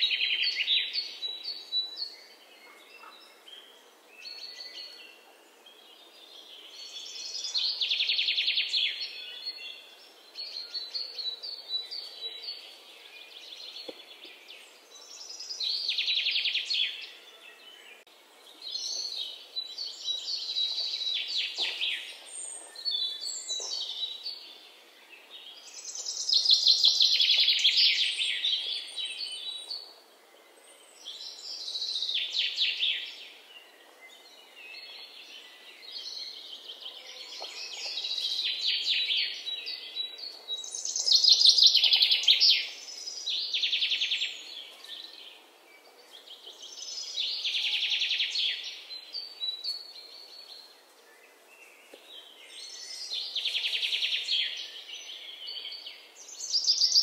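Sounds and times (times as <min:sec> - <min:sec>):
faint outdoor background: 0:00.0 - 0:57.0.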